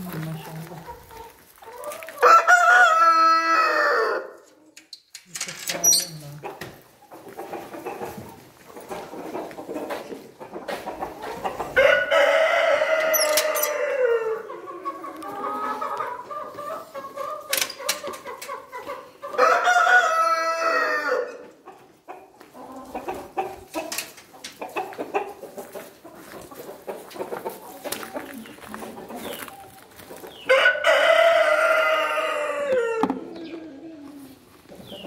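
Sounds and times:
rooster crowing: 2.2s - 4.4s, 11.8s - 14.5s, 19.3s - 21.4s, 30.5s - 33.1s
hens clucking softly: 6.1s - 35.0s.

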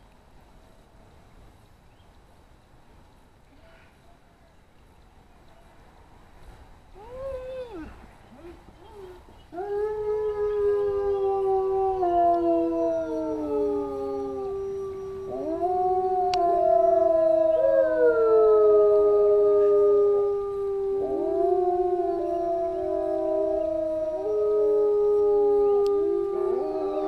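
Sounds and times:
wolves howling: 7.0s - 27.0s.

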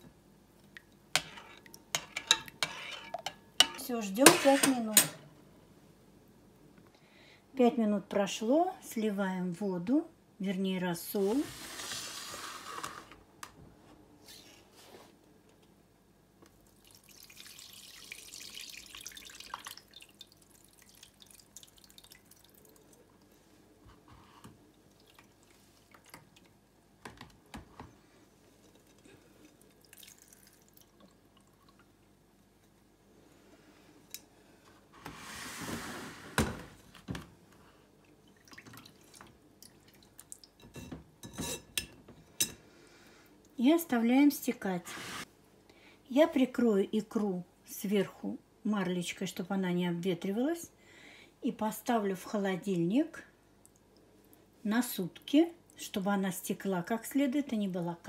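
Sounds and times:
liquid pouring through strainer: 16.7s - 23.0s, 28.6s - 31.9s.

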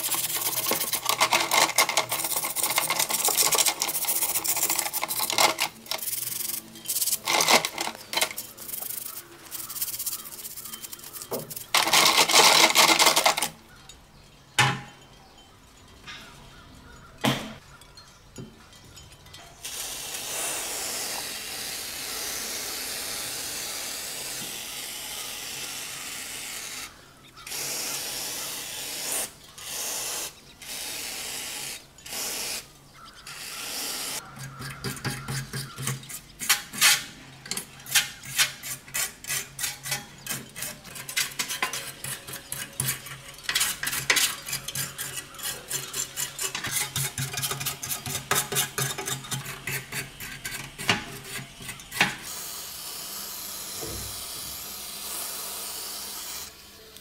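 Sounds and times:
brush scraping paint: 0.0s - 13.5s, 34.2s - 52.4s
aerosol spray hissing: 19.7s - 26.9s, 27.5s - 32.7s, 52.3s - 56.8s.

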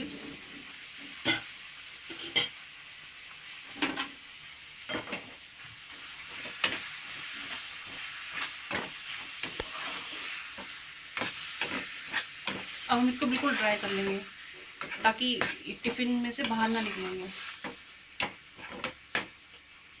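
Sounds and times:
curry sizzling in a pan: 0.0s - 20.0s
spoon scraping a pan: 2.1s - 2.6s, 5.9s - 19.3s.

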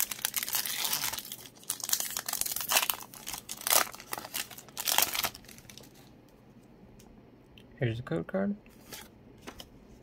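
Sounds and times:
foil wrapper crinkling: 0.0s - 6.1s.

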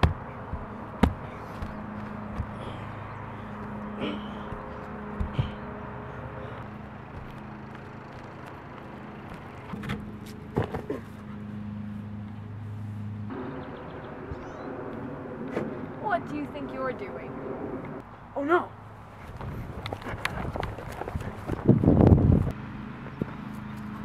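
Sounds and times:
footsteps thumping on roof: 0.0s - 2.8s, 4.5s - 5.6s, 7.1s - 8.3s
low mechanical hum: 0.0s - 18.1s.

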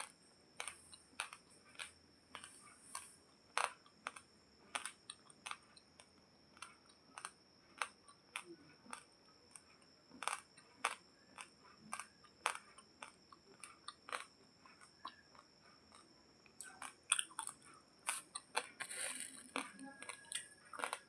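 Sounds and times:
rice grains crunching: 16.6s - 21.0s.

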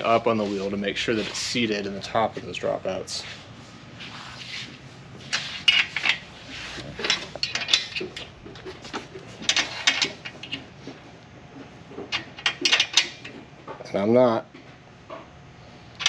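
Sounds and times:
metal hardware and wrench clinking: 6.9s - 8.8s.

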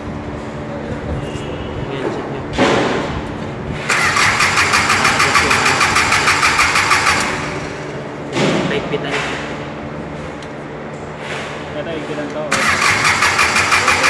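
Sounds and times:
engine cranking on starter motor: 3.8s - 8.0s, 12.5s - 14.0s.

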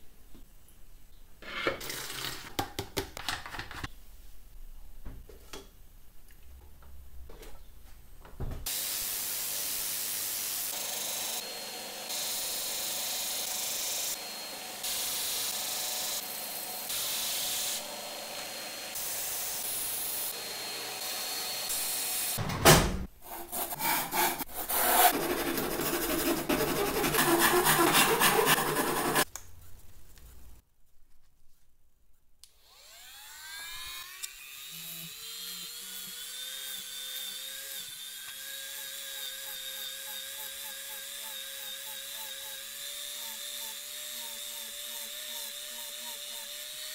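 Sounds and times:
irregular scraping: 23.3s - 30.5s
disc sander grinding circuit board: 24.8s - 29.3s.

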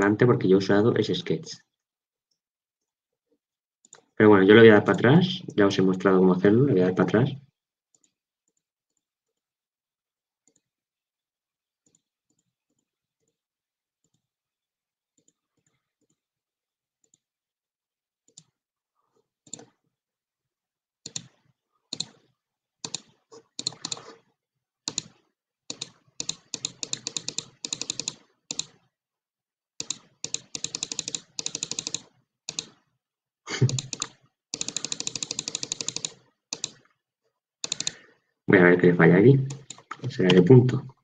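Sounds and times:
computer keyboard keys clicking: 21.1s - 22.2s, 22.8s - 24.1s, 24.9s - 28.8s, 29.8s - 32.8s, 33.6s - 36.8s, 37.6s - 38.0s, 39.5s - 40.0s.

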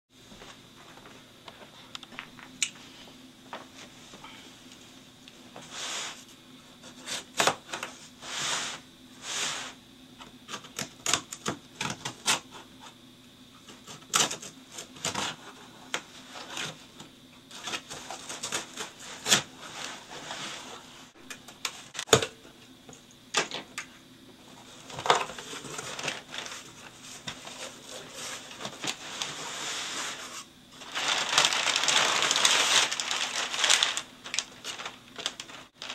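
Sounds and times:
packing paper crinkling: 24.6s - 35.9s.

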